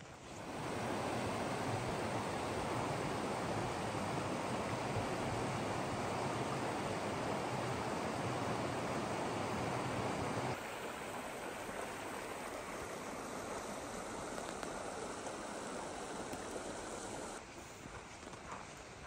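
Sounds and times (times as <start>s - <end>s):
river rushing over rocks: 0.4s - 17.4s
faint clicks: 13.6s - 17.4s.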